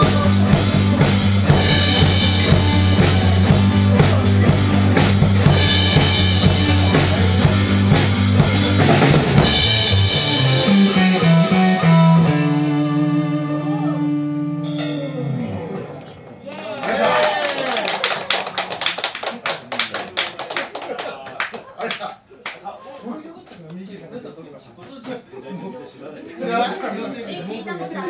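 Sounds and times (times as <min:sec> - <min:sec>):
live rock band playing: 0:00.0 - 0:16.4
held guitar chord ringing: 0:09.4 - 0:16.1.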